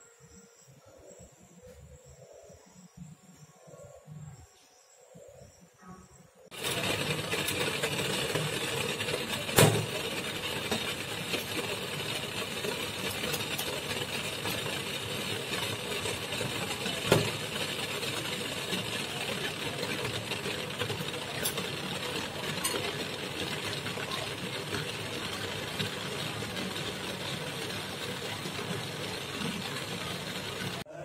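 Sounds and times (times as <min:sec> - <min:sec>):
water boiling with bubbling hiss: 0:06.5 - 0:30.9.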